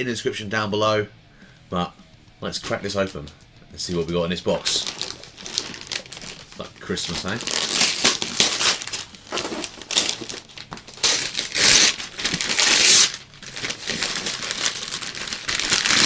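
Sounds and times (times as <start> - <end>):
wrapping paper tearing and crumpling: 3.9 - 16.0.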